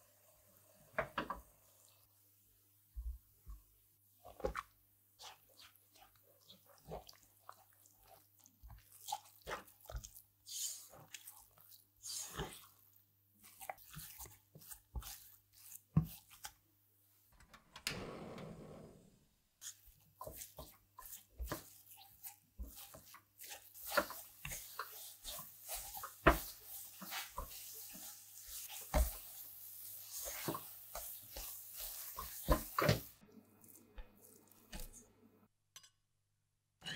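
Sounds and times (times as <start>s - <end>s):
spatula scraping dough in pan: 13.4s - 16.6s, 19.6s - 33.1s.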